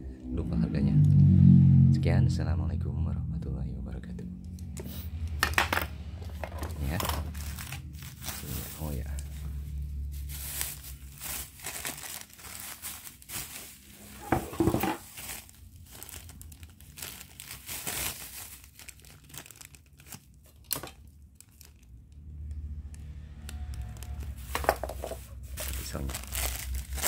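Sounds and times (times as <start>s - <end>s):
plastic bag crinkling: 6.3s - 22.1s, 23.6s - 27.0s.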